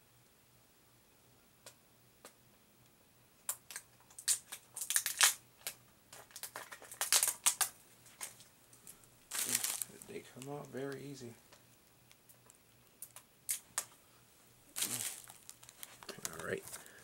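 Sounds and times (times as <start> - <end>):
plastic wrap crinkling: 3.7 - 11.6, 14.7 - 17.0.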